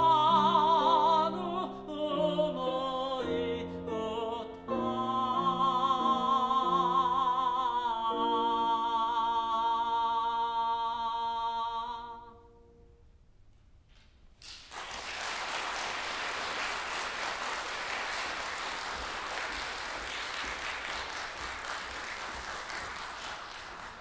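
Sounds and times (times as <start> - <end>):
audience applauding: 14.4 - 24.0.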